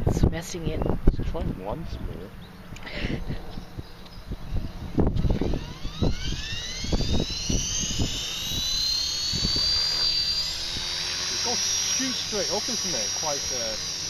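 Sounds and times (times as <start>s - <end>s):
helicopter motor and rotor whine: 0.0s - 14.0s.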